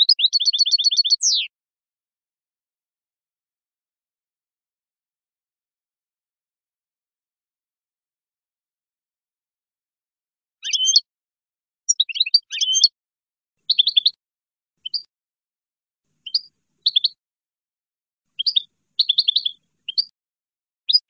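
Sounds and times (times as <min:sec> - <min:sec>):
goldfinch twittering song: 0:00.0 - 0:01.5, 0:10.6 - 0:11.1, 0:11.9 - 0:12.9, 0:13.6 - 0:14.2, 0:14.8 - 0:15.1, 0:16.2 - 0:17.2, 0:18.4 - 0:20.2.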